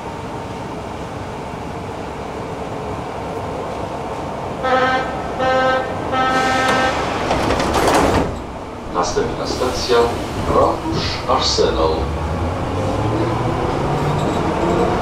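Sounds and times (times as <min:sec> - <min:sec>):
train ventilation hum: 0:00.0 - 0:13.0
train doors sliding shut: 0:05.8 - 0:15.0.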